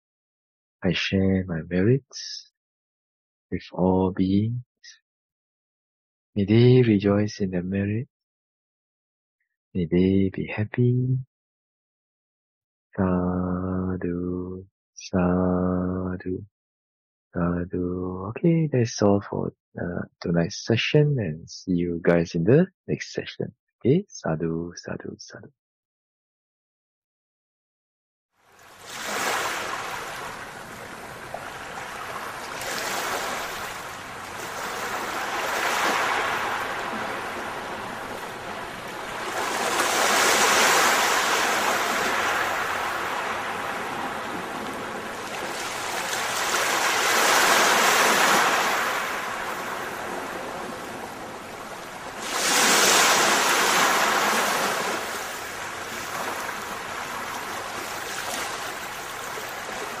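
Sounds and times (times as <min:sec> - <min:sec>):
waves breaking: 0:28.6 - 1:00.0.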